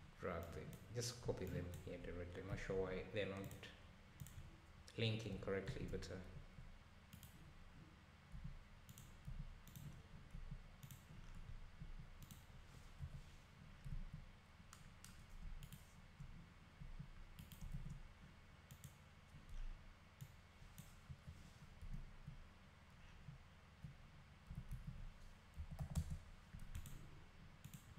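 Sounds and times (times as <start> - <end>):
faint low rumble: 0.0 - 27.9
computer mouse clicks: 3.4 - 4.5, 7.1 - 7.4, 8.4 - 13.2, 13.8 - 16.4, 17.0 - 18.0, 18.7 - 22.4, 23.2 - 27.0, 27.6 - 27.9.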